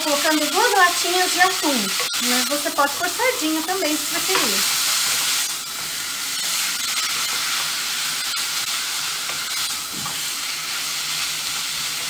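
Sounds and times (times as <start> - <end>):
food sizzling in a pot: 0.0 - 12.0.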